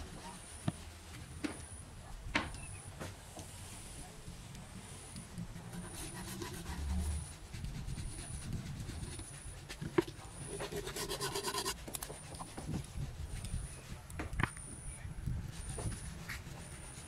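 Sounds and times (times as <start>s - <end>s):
faint high chirp: 2.5s - 2.9s
pencil scratching on board: 5.4s - 12.8s.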